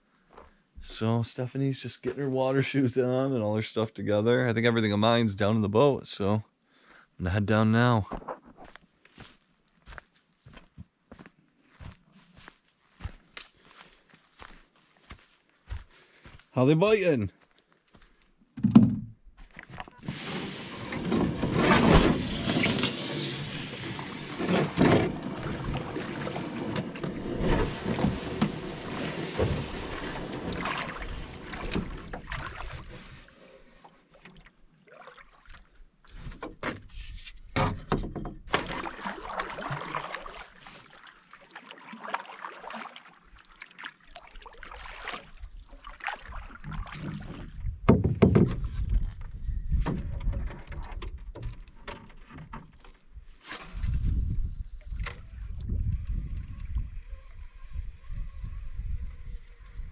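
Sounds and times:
knocks against canoe hull: 18.6s - 19.1s, 46.9s - 48.7s
paddle strokes splashing: 22.9s - 32.6s, 33.2s - 35.8s, 38.5s - 47.5s.

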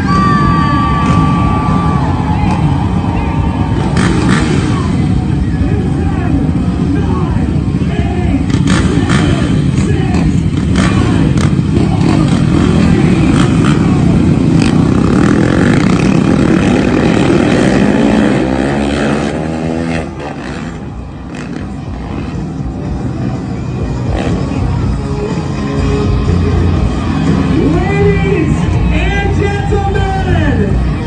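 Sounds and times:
engines revving: 0.0s - 31.0s.

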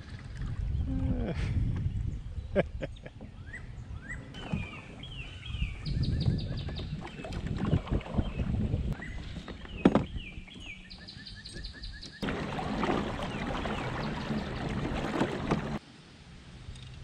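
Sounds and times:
birds singing: 1.8s - 15.8s
wind and water rushing: 3.9s - 10.9s, 12.2s - 16.6s.

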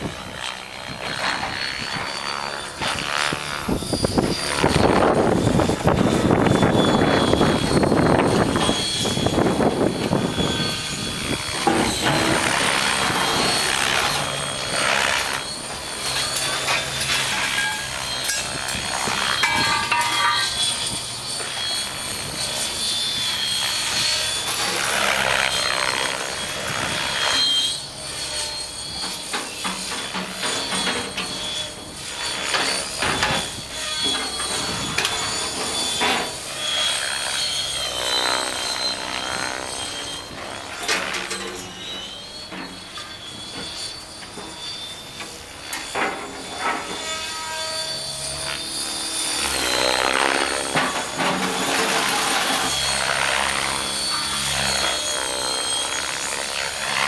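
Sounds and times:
high-pitched motor whine: 0.0s - 57.0s
rotor blades whooshing: 0.9s - 42.1s.

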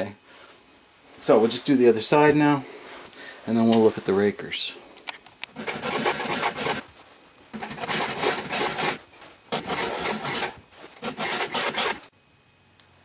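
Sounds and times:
file rasping on chainsaw chain: 5.5s - 6.8s, 7.5s - 12.1s.

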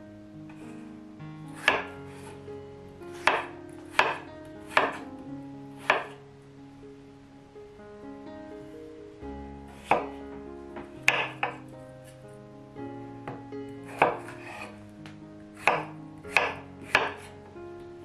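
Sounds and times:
soft background music: 0.0s - 18.0s
knife chopping on wooden board: 1.6s - 1.9s, 3.2s - 5.0s, 5.8s - 6.2s, 9.8s - 10.1s, 11.1s - 11.6s, 13.9s - 14.7s, 15.6s - 17.3s.

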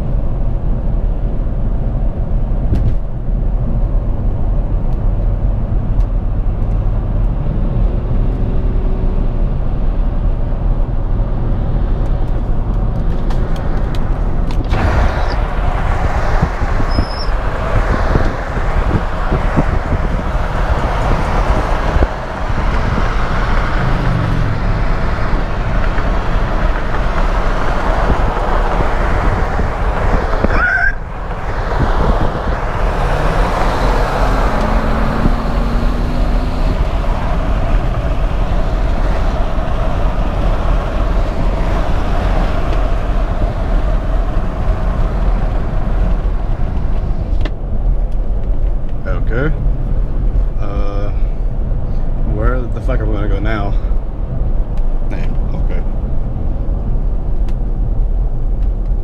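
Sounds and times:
car engine and tyre rumble: 0.0s - 59.0s
even rushing noise: 12.4s - 52.8s.

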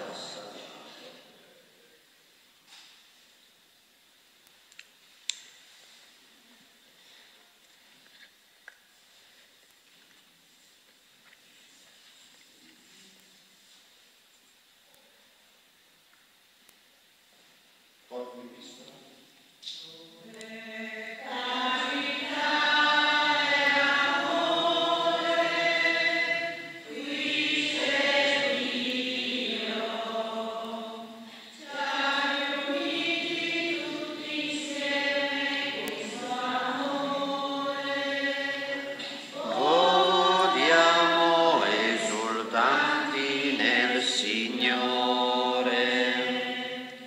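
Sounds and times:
voices singing a hymn: 0.0s - 1.4s, 20.1s - 47.0s.

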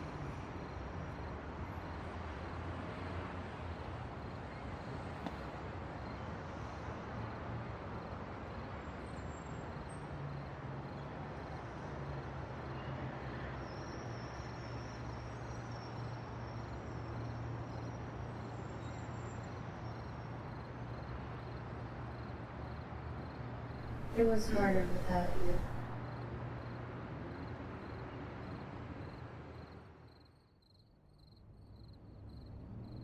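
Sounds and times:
low hum: 23.8s - 26.0s
faint insect chirping: 26.6s - 33.0s.

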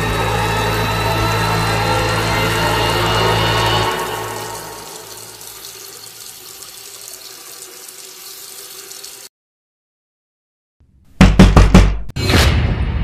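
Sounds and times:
water running from tap into sink: 0.0s - 9.3s
loud knocks: 11.2s - 12.1s.

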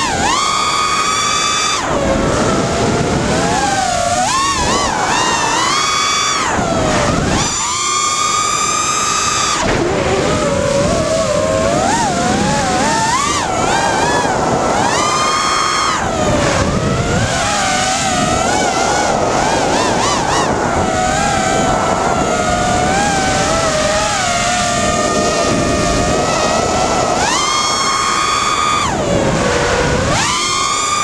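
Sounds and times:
drone motors whining: 0.0s - 31.0s.

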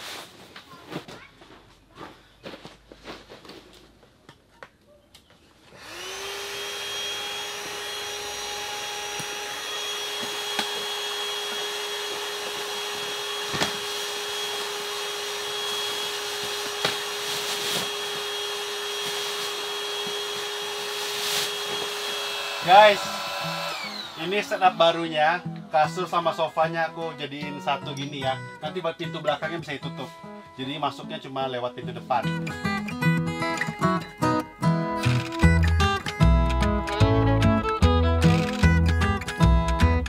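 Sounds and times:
rustling and handling: 0.0s - 5.7s, 15.9s - 22.0s
electric air pump running: 5.7s - 25.1s.

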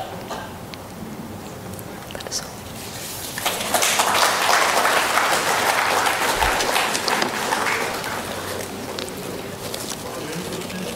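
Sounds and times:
audience applauding: 3.2s - 10.9s.

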